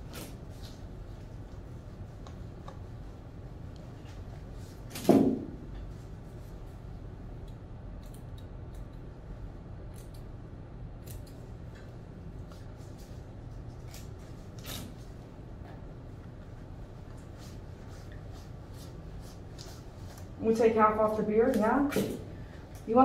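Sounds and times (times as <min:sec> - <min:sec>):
scissors snipping hair: 0:07.4 - 0:09.1, 0:09.9 - 0:10.4, 0:11.0 - 0:11.5, 0:13.7 - 0:15.0.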